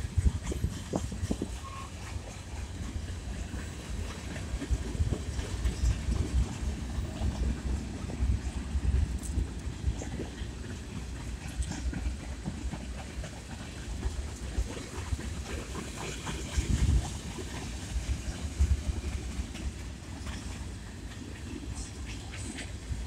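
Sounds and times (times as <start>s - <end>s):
freight train rumbling past: 0.0s - 23.0s
wheels clicking over rail joints: 0.0s - 23.0s.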